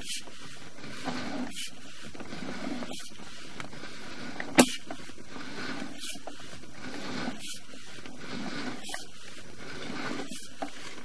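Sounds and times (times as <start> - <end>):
cable rasping: 0.0 - 11.0
sharp click: 4.5 - 4.8.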